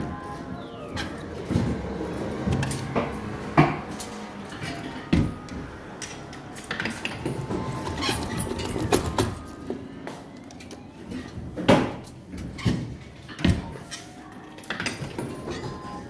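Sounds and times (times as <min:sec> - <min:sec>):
claw machine music and tones: 0:00.0 - 0:11.6.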